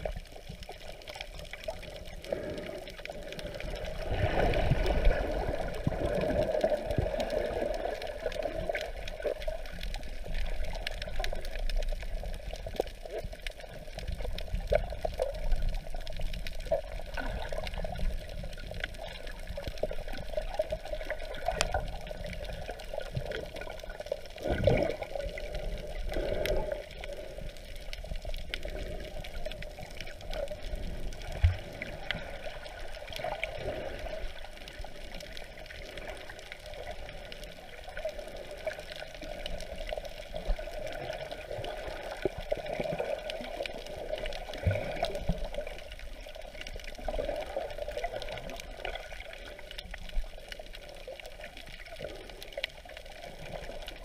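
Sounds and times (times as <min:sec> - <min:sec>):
muffled underwater water hiss: 0:00.0 - 0:54.0
water whooshes: 0:03.4 - 0:09.2.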